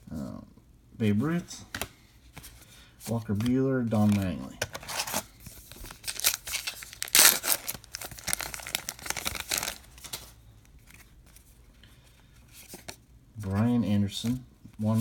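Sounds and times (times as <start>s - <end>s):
wrapper tearing and crinkling: 4.8s - 10.3s.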